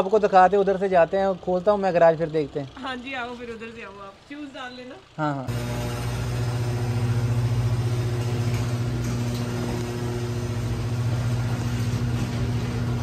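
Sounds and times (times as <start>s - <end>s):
garage door opener motor hum: 5.5s - 13.0s.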